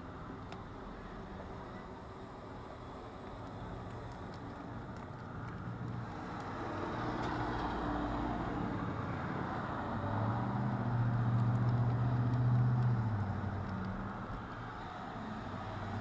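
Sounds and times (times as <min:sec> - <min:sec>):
vehicle engine hum: 0:00.0 - 0:16.0.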